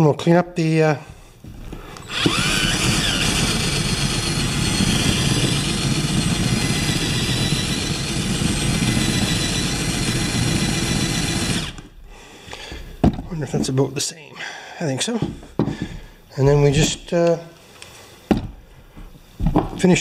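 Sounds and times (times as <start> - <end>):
cordless drill boring into rubber: 2.0 - 12.0.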